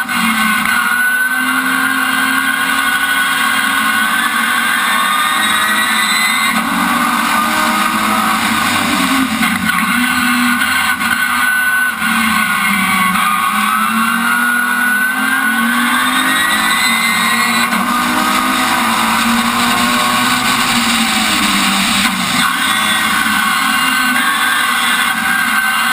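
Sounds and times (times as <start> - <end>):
race car engine revving: 0.0 - 25.9.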